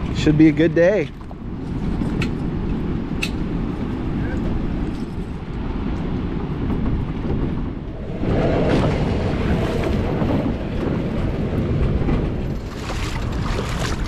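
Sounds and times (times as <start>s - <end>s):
wind buffeting microphone: 0.0s - 14.0s
flowing river water: 12.6s - 14.0s.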